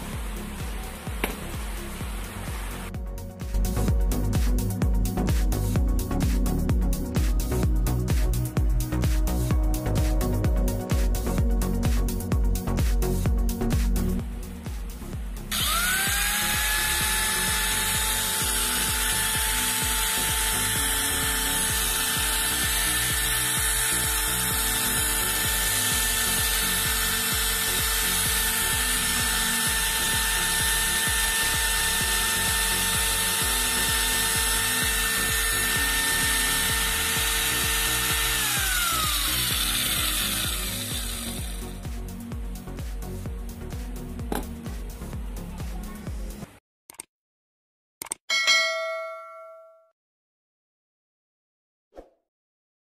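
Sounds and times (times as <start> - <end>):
background music with steady beat: 0.0 - 46.6
angle grinder motor whining: 15.5 - 41.8.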